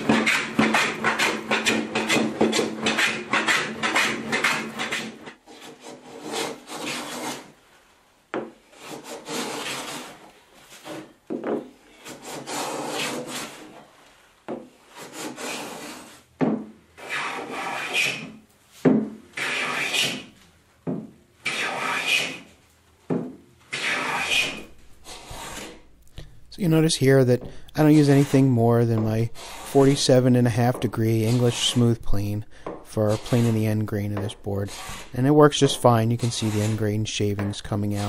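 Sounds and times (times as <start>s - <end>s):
plane shaving wood: 0.0s - 7.5s, 8.7s - 11.1s, 12.0s - 13.7s, 14.9s - 16.2s, 17.0s - 18.4s, 19.4s - 20.3s, 21.5s - 22.5s, 23.7s - 25.8s, 27.8s - 32.2s, 32.9s - 37.5s
hand saw strokes: 17.0s - 18.4s, 19.4s - 20.3s, 21.4s - 22.5s, 23.7s - 25.8s, 27.8s - 37.0s.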